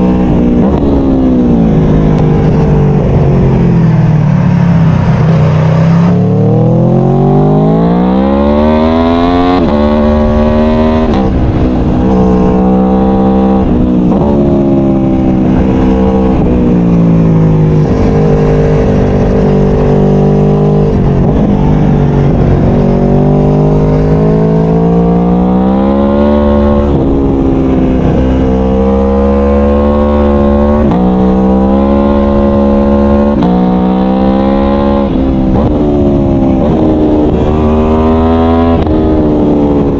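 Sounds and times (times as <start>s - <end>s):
motorcycle engine accelerating: 0.0s - 39.9s.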